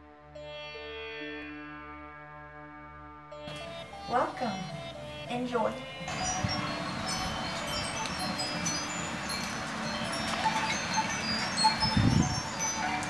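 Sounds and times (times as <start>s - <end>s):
wind chimes tinkling: 3.5s - 13.0s.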